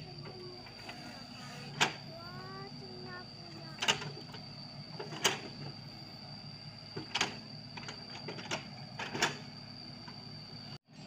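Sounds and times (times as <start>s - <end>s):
excavator engine running: 0.0s - 11.0s
machine clicks and knocks: 3.8s - 4.4s, 5.0s - 5.5s, 7.0s - 9.4s.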